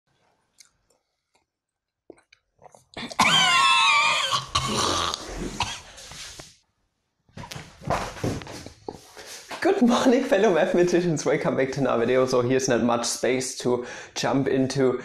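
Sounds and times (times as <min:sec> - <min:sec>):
man's strained cough-like outburst: 0:03.0 - 0:05.9.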